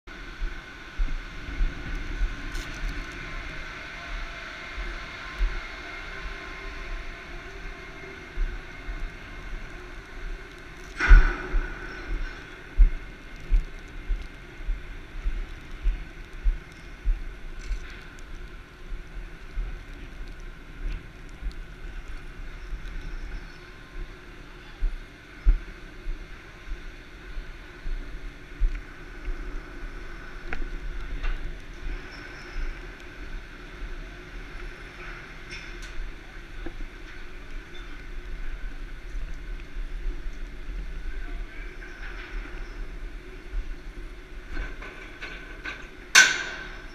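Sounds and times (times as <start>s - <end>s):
steady hum: 0.0s - 46.9s
footsteps on steel deck: 10.6s - 22.2s.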